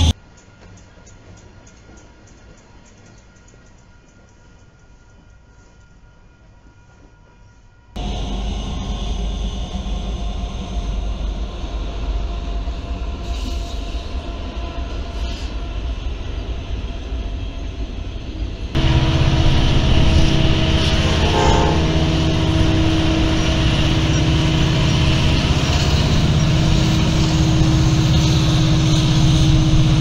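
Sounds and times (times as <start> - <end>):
diesel locomotive engines rumbling: 0.0 - 30.0
diesel engine drone: 8.0 - 13.4, 18.7 - 30.0.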